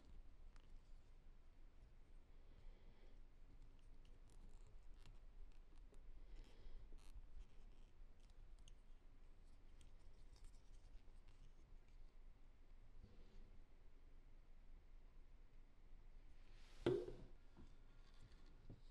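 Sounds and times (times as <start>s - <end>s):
light scratching of plastic toys: 3.6s - 12.2s, 17.6s - 18.9s.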